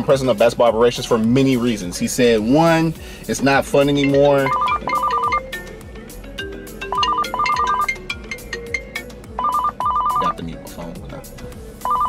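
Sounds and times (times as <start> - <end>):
music with beat and bass: 0.0 - 12.0
trilling telephone-like figure: 4.0 - 5.5, 6.9 - 10.3.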